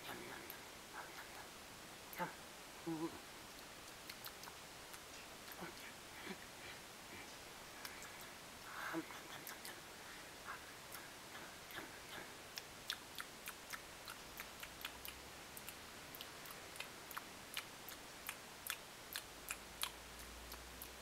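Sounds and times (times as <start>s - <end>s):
caterpillar chewing leaf: 3.4s - 6.0s, 10.9s - 21.0s.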